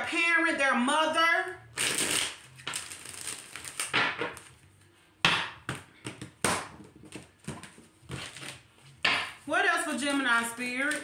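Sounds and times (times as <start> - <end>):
cards being shuffled: 1.8 - 4.6.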